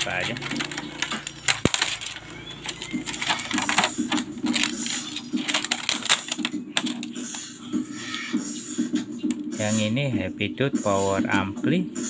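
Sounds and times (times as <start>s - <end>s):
hard objects clicking and clattering: 0.0s - 7.5s.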